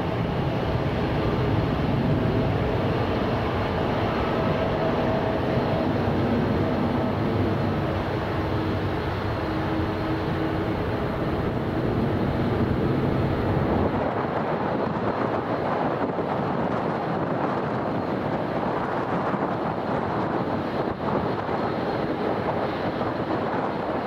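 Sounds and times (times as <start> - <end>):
jet engines roaring at takeoff: 0.0 - 24.0
wind noise on microphone: 0.0 - 24.0.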